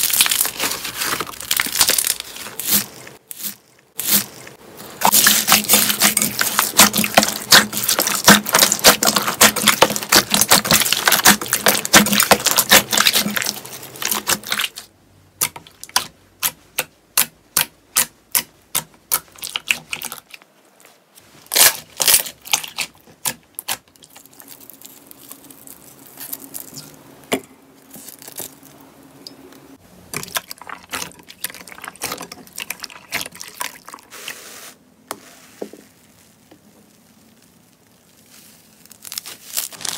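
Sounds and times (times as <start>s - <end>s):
hands squishing slime: 0.0s - 4.3s, 5.0s - 14.9s.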